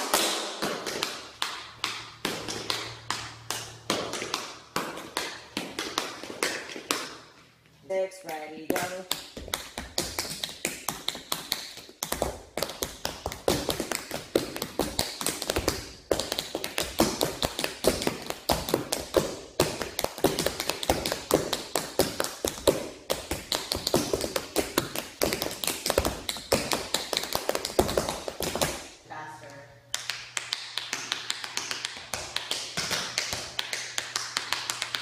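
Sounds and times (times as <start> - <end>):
tap dancing on hard floor: 0.0 - 7.3, 8.2 - 28.8, 29.9 - 35.0.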